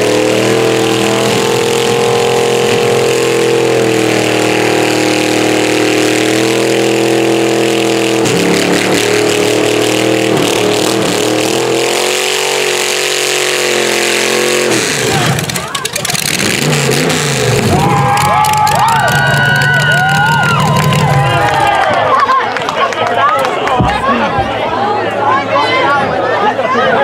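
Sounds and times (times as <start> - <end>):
engine revving high: 0.0 - 21.6
tyres spinning on concrete: 15.1 - 16.7, 17.6 - 24.7.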